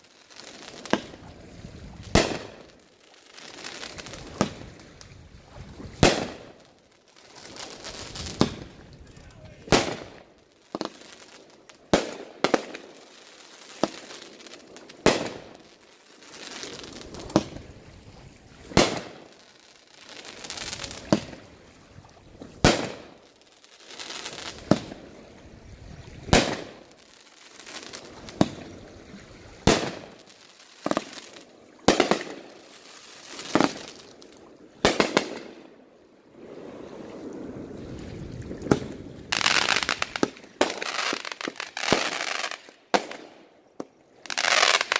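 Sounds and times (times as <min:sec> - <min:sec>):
fireworks crackling and fizzing: 0:00.0 - 0:21.7, 0:22.3 - 0:35.7, 0:36.4 - 0:44.9
fireworks bangs: 0:02.0 - 0:02.7, 0:03.3 - 0:04.7, 0:06.0 - 0:06.6, 0:07.3 - 0:15.8, 0:16.4 - 0:17.6, 0:18.7 - 0:19.4, 0:20.0 - 0:21.4, 0:22.4 - 0:23.2, 0:23.9 - 0:25.0, 0:26.3 - 0:28.7, 0:29.6 - 0:34.0, 0:34.8 - 0:35.6, 0:38.6 - 0:43.4, 0:44.2 - 0:44.9.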